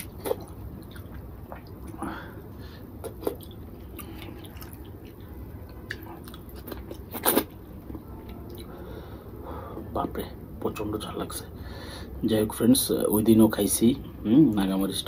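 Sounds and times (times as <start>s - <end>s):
chewing: 0.0s - 2.0s, 3.0s - 7.6s.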